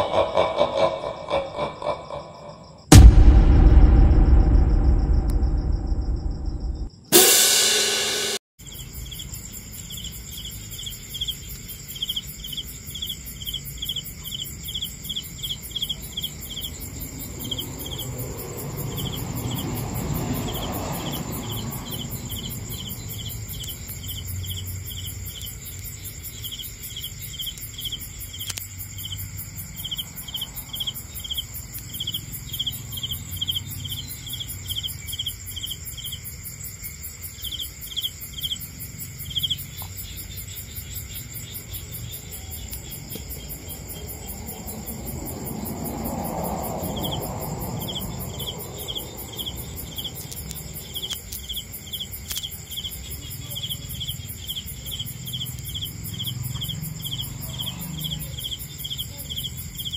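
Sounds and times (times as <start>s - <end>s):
crickets chirping: 0.0s - 59.9s
low rumble: 2.9s - 6.9s
high insect trill: 5.7s - 59.9s.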